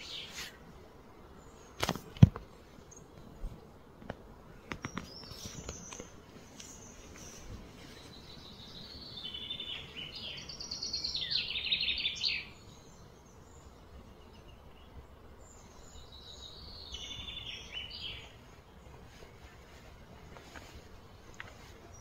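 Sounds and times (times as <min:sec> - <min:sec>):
songbird chirping and trilling: 0:00.0 - 0:01.8, 0:04.5 - 0:19.8
outdoor background hiss: 0:00.0 - 0:22.0.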